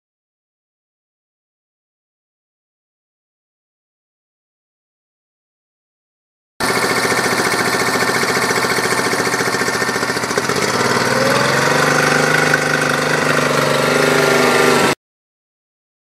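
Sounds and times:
outboard motor running: 6.6s - 15.0s.

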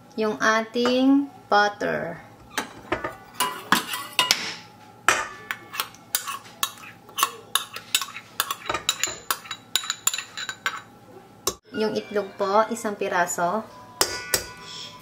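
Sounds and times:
spoon scraping glass bowl: 5.5s - 10.9s
spoon clinking on glass bowl: 6.2s - 10.9s.

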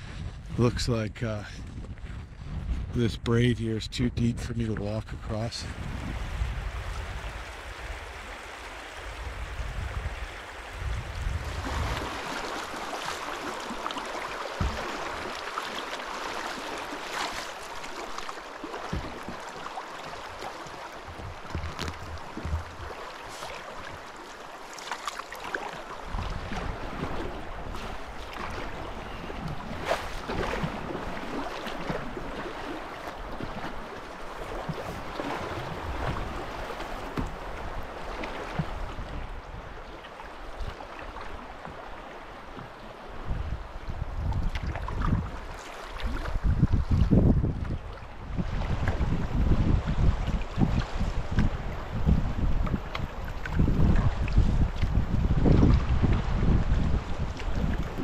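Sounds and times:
wind rumble on microphone: 0.0s - 13.2s, 14.6s - 15.4s, 20.0s - 24.1s, 26.0s - 41.9s, 42.6s - 58.0s
fast river water rushing: 5.7s - 44.0s
short splashes and knocks: 11.4s - 39.0s.

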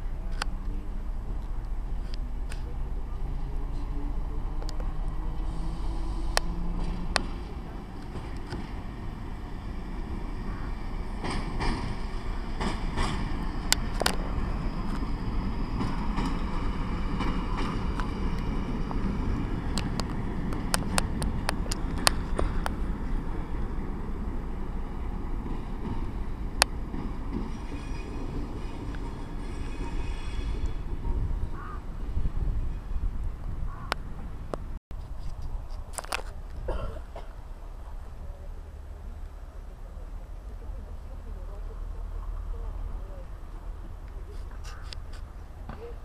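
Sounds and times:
diesel locomotive engine rumble: 0.0s - 46.0s.

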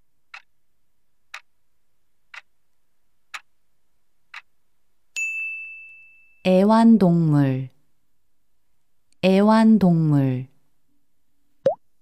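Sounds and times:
clock ticks: 0.3s - 0.5s, 1.3s - 1.5s, 2.3s - 2.5s, 3.3s - 3.5s, 4.3s - 4.5s
bell ding: 5.2s - 6.4s.

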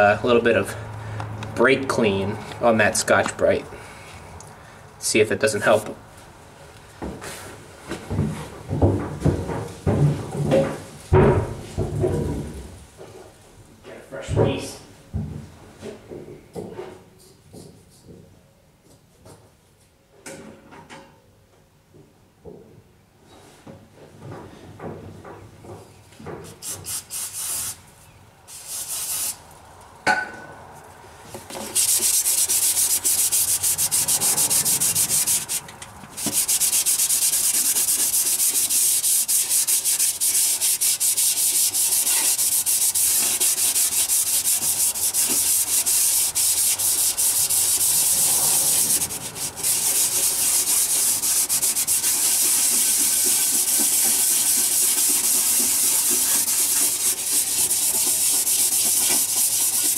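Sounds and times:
scouring pad scrubbing metal: 31.7s - 35.6s, 36.2s - 59.9s.

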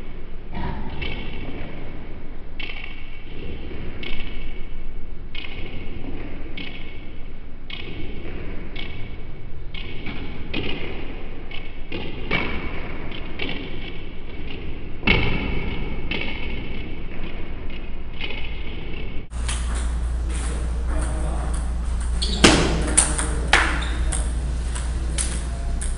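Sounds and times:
table tennis ball hits: 5.4s - 25.9s
hall hum: 19.3s - 25.9s.

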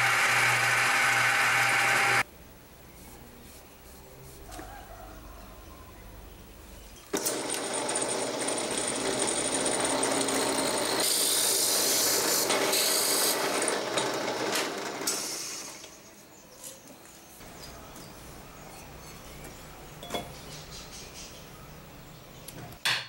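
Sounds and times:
drill press boring wood: 0.0s - 2.2s, 7.1s - 16.0s.

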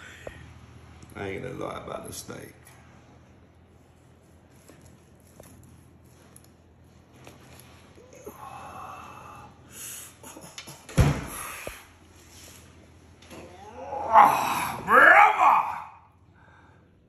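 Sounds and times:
thump on kitchen worktop: 11.0s - 11.4s.

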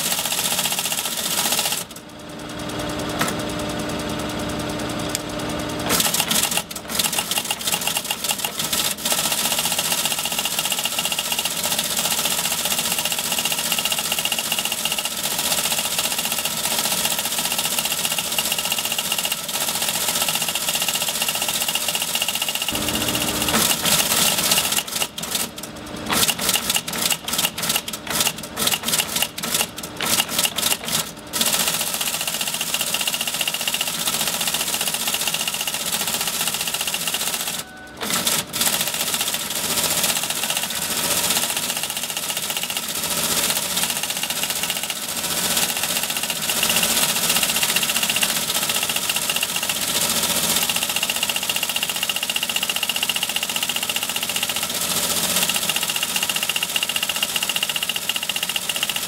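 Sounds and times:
teleprinter mechanical clatter: 2.8s - 15.2s, 21.2s - 59.0s
machine hum: 22.7s - 24.0s.

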